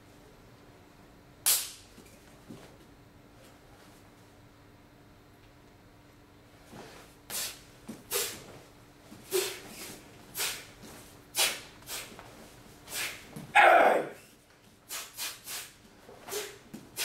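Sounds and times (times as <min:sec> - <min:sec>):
sharp hissing exhalations: 0:07.3 - 0:08.4, 0:09.3 - 0:10.7, 0:11.4 - 0:12.1, 0:12.9 - 0:13.2, 0:14.9 - 0:17.0
person grunting: 0:13.6 - 0:14.2.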